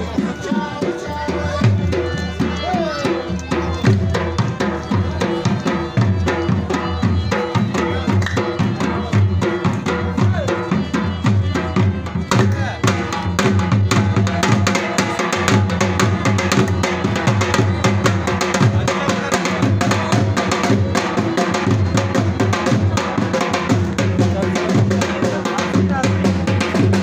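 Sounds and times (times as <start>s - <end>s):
drum played with sticks: 0.0s - 27.0s.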